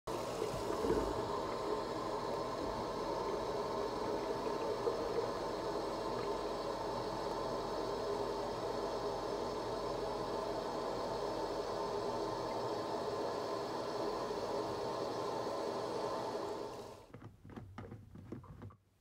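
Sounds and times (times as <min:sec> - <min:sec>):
water pouring into plastic jug: 0:00.1 - 0:10.0
tap water running: 0:00.1 - 0:17.9.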